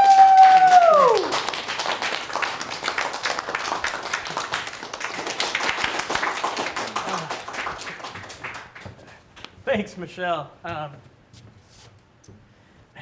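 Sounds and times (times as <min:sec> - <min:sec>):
audience clapping: 0:00.0 - 0:09.6.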